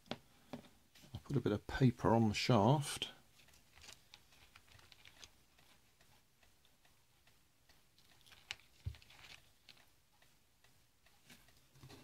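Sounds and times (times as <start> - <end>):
faint clicks and taps of handling: 0.0 - 1.4, 3.3 - 10.4.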